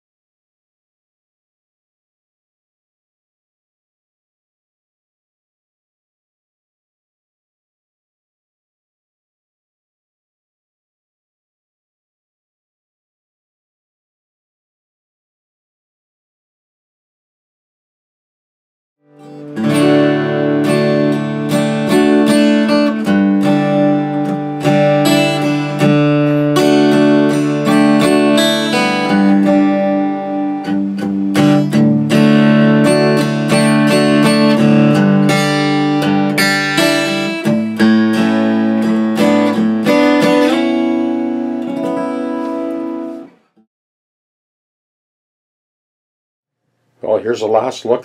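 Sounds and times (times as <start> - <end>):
acoustic guitar picked chords: 19.0 - 43.6.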